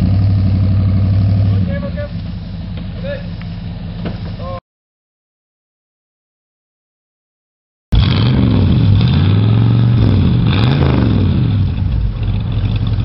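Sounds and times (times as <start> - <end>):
engine revving: 0.0 - 2.2, 7.9 - 13.0
engine idling: 0.0 - 4.6, 8.8 - 13.0.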